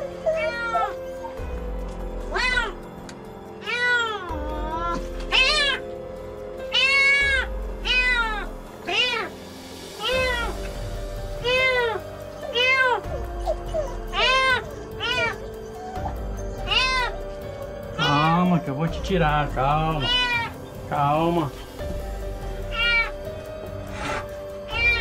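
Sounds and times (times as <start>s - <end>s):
kitten meowing in distress: 0.2s - 1.0s, 2.3s - 2.8s, 3.6s - 5.8s, 6.7s - 9.4s, 10.0s - 10.7s, 11.4s - 13.1s, 14.1s - 15.4s, 16.7s - 17.2s, 18.0s - 18.4s, 19.9s - 20.6s, 22.7s - 23.2s, 23.9s - 25.0s.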